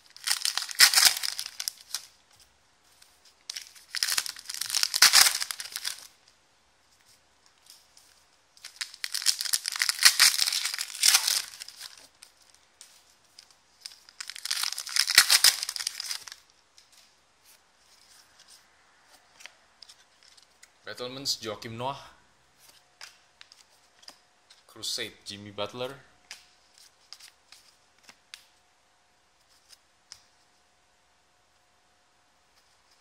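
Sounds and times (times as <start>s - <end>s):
foil wrappers torn and crinkled: 0.0s - 2.2s, 3.5s - 6.1s, 8.6s - 12.6s, 13.4s - 16.4s.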